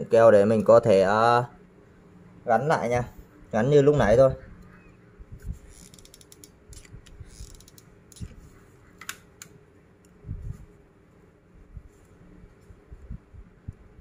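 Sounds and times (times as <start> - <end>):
hot glue gun clicks and creaks: 5.7 - 8.3.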